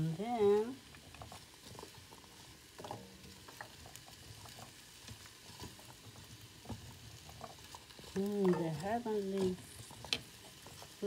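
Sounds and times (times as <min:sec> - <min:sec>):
vegetables sizzling: 0:00.0 - 0:11.0
wooden spoon scraping a pan: 0:00.1 - 0:11.0.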